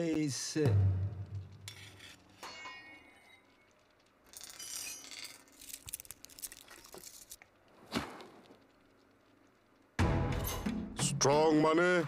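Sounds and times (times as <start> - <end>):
quick clicks and crackles: 3.6 - 9.9.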